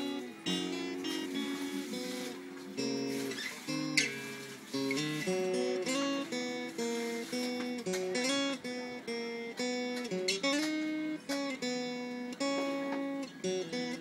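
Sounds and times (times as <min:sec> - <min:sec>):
acoustic guitar chords: 0:00.0 - 0:14.0.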